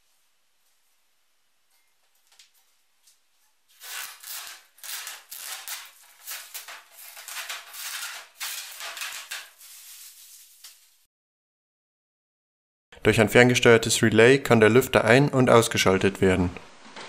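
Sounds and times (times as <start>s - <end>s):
plastic film peeling off: 3.7s - 10.9s.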